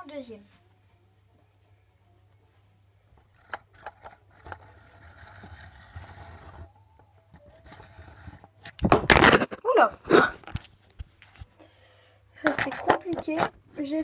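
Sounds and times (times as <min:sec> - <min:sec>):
sleeve rubbing on microphone: 0:04.7 - 0:06.7.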